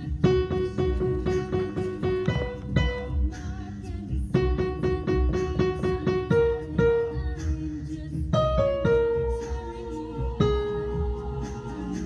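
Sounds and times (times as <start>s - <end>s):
keyboard held notes: 0.0s - 3.4s.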